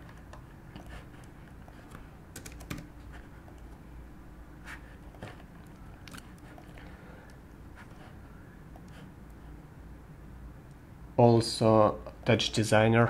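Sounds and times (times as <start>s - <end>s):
keyboard and mouse clicks: 0.0s - 2.9s
low room hum: 0.0s - 13.0s.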